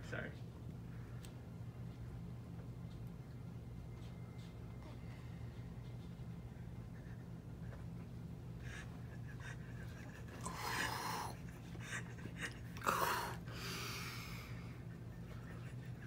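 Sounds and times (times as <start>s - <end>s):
man breathing hard: 8.5s - 15.0s.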